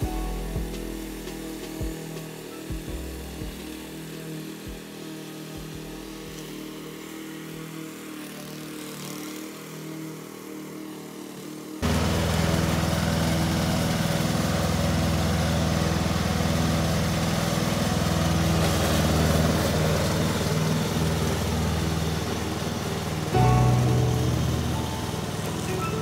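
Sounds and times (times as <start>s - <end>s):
lawn tractor engine running: 0.0s - 9.6s, 11.8s - 26.0s.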